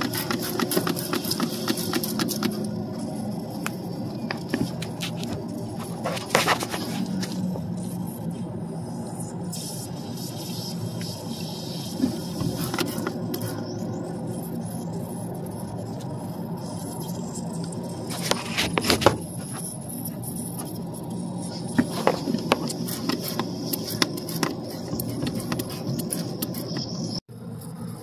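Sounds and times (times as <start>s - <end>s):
sharp clicks and scrapes: 0.0s - 27.2s
gas hissing from leak: 7.0s - 18.4s.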